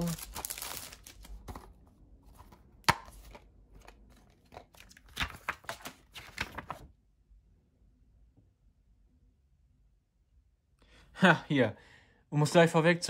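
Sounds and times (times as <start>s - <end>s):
paper and plastic crinkling: 0.0s - 6.9s.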